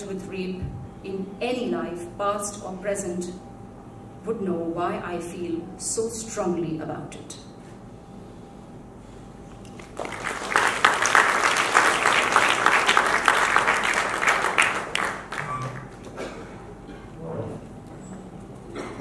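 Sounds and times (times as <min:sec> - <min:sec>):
audience applauding: 0:09.6 - 0:16.2.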